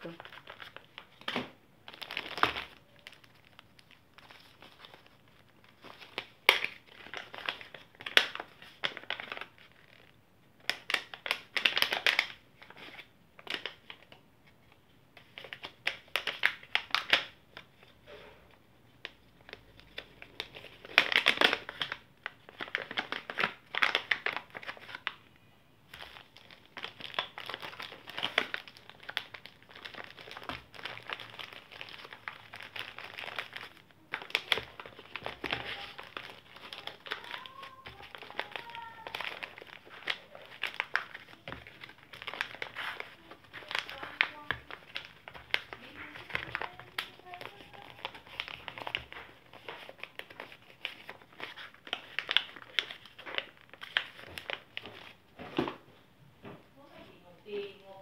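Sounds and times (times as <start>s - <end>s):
packaging bags crinkling: 0.0s - 10.1s, 19.1s - 25.2s, 25.9s - 55.3s.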